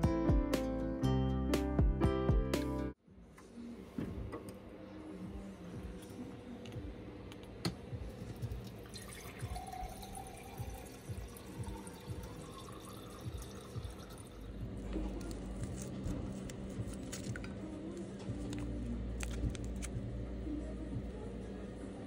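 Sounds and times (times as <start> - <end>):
tap water filling a glass: 8.4 - 14.5.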